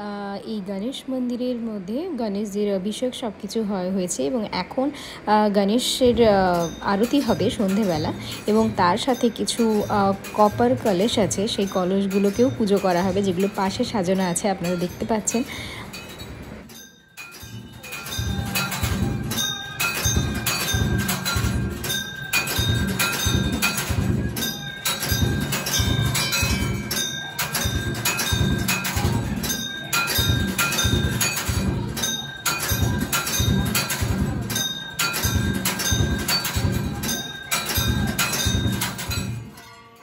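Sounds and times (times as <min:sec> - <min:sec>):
bells ringing: 0:06.0 - 0:40.0
steady drumbeat: 0:17.4 - 0:39.6.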